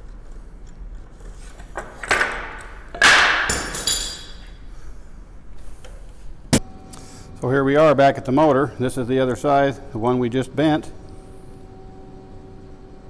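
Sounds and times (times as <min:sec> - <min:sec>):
clamps clattering: 0:01.8 - 0:04.4.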